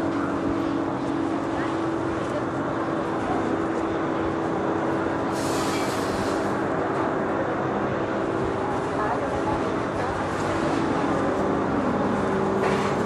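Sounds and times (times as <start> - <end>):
low street hum: 0.0 - 13.0
short hiss: 5.3 - 6.5.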